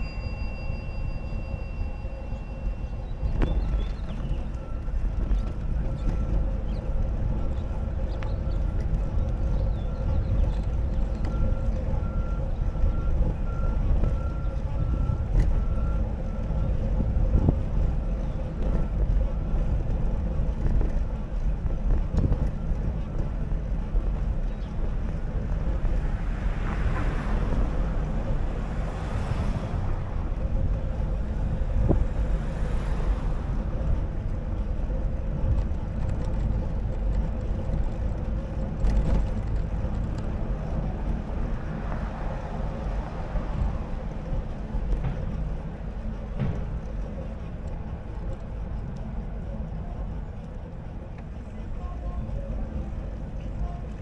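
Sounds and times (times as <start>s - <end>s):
short electronic beeps: 0.0s - 3.0s
faint steady whine: 0.0s - 42.0s
street traffic: 0.0s - 54.0s
wind rumble on microphone: 0.0s - 54.0s
vehicle passing: 25.3s - 35.5s, 38.8s - 46.2s.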